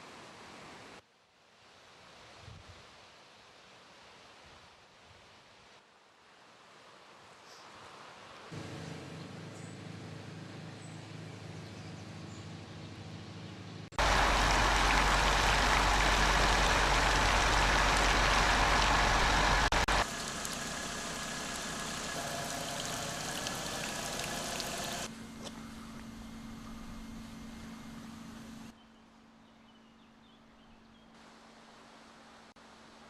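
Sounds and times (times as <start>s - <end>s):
low engine hum: 8.6s - 28.8s.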